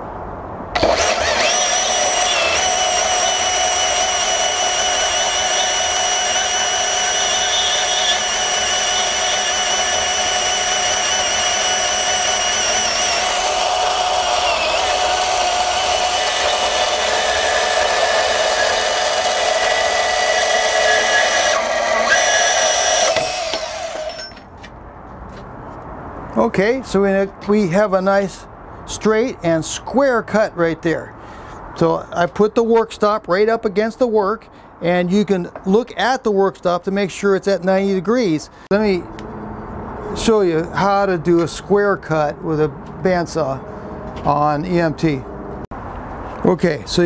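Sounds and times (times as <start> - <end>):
band saw motor whine: 0.8 - 24.4
saw blade grinding through steel: 0.8 - 24.5.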